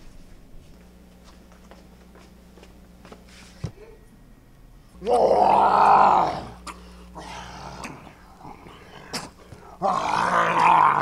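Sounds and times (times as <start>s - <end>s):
person roaring like a beast: 5.0s - 9.1s, 9.7s - 11.0s.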